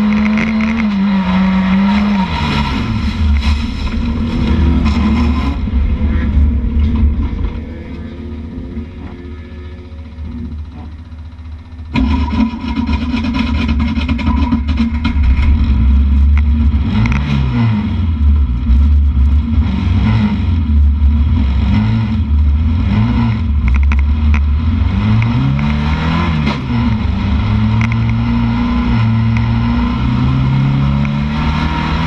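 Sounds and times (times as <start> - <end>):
sharp clicks and knocks: 0.0 - 1.0, 11.9 - 17.4, 23.6 - 27.1, 27.7 - 28.3
car engine revving hard: 0.0 - 9.9, 12.0 - 32.0.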